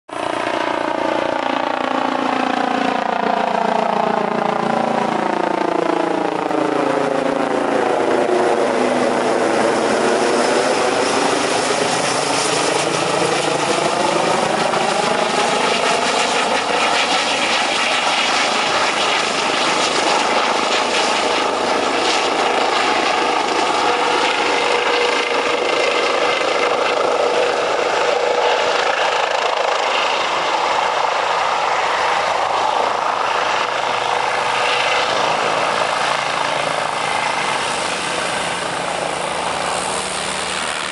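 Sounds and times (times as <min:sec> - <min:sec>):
helicopter flying past: 0:00.1 - 0:40.9.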